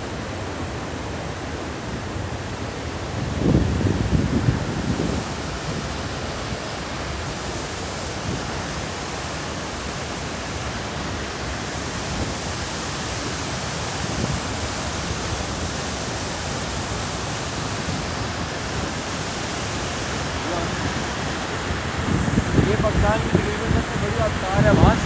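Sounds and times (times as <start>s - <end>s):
waterfall rushing: 0.0s - 25.0s.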